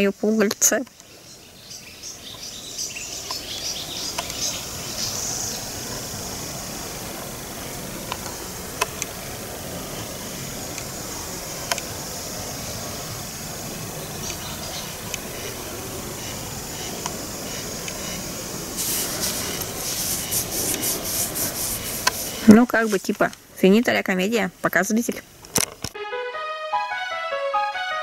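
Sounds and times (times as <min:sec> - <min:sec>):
insects chirring: 0:00.0 - 0:25.9
bird chirps: 0:01.1 - 0:05.6.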